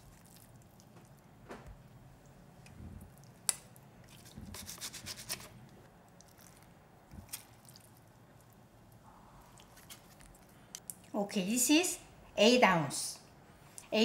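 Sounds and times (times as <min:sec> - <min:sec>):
kimchi squishing and rubbing: 0:00.0 - 0:01.3, 0:03.0 - 0:11.2.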